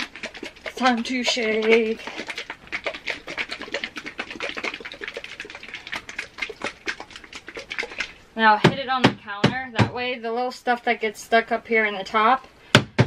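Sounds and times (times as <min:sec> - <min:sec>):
plastic bottle shaken rattling: 0:00.0 - 0:08.2.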